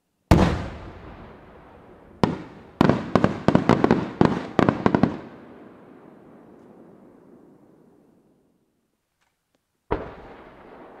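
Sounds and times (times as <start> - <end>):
echo of bangs: 0.3 - 6.0.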